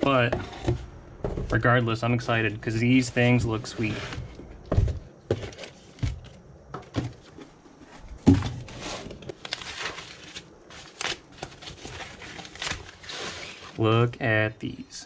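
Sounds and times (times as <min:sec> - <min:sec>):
packaging crinkling: 0:08.7 - 0:13.8.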